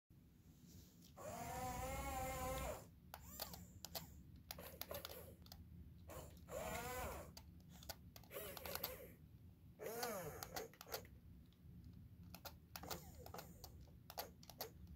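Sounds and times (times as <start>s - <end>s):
small electric motors whining: 1.2s - 5.3s, 6.1s - 9.2s, 9.8s - 11.0s
plastic clicking and ticking: 6.3s - 9.0s, 10.0s - 14.9s.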